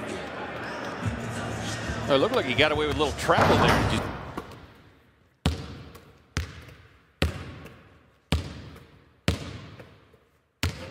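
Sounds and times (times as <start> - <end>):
basketball bouncing on hard court: 5.4 - 10.0, 10.6 - 10.9.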